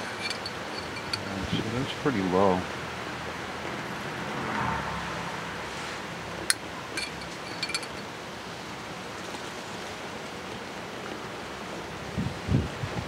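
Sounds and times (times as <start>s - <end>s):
metal spoon clinks: 0.0s - 1.4s, 6.5s - 8.1s.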